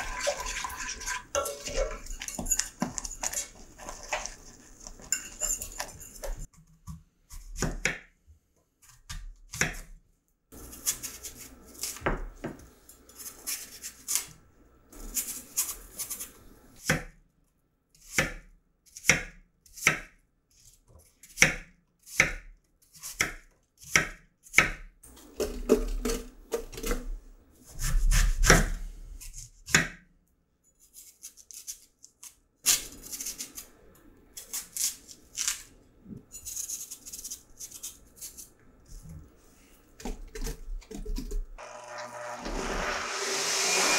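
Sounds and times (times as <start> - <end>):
knife cutting apple on board: 5.7 - 8.1, 8.8 - 10.0, 10.6 - 14.4, 15.0 - 17.2, 18.0 - 20.2, 21.2 - 30.0.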